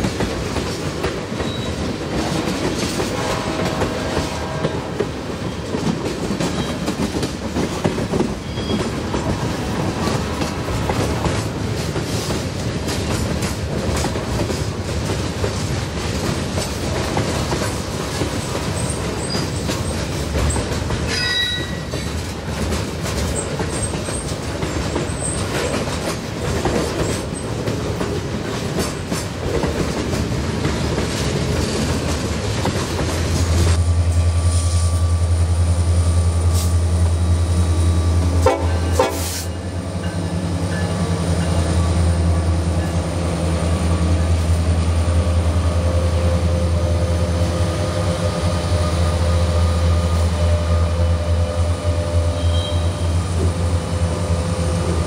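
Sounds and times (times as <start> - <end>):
diesel locomotive engine drone: 0.0 - 55.0
train wheels clacking on track: 0.0 - 55.0
wheel flange squeals: 1.4 - 1.8, 8.4 - 9.0, 21.1 - 22.1, 52.3 - 53.2.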